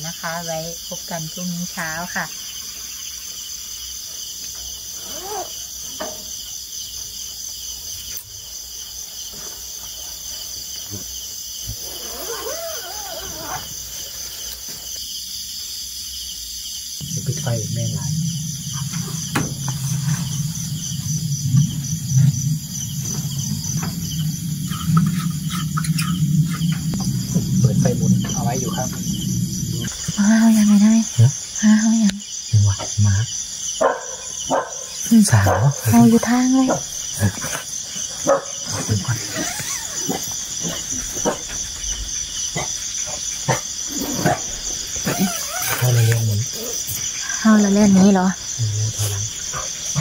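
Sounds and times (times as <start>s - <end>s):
crickets and insects trilling: 0.0s - 50.0s
low wavering hum: 17.0s - 30.2s
dog barking: 33.8s - 35.9s, 36.6s - 36.9s, 38.2s - 38.7s.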